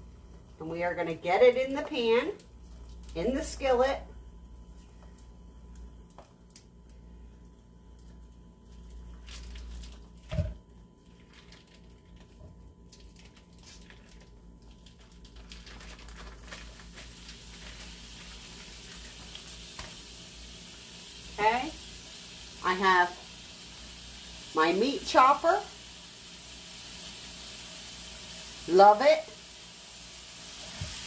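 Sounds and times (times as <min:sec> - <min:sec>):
plastic crinkling: 0:08.0 - 0:10.4, 0:11.0 - 0:20.0
meat squishing: 0:08.7 - 0:10.4, 0:11.0 - 0:19.9
lump of meat thumping in pan: 0:10.3 - 0:10.6
meat sizzling: 0:14.5 - 0:31.0.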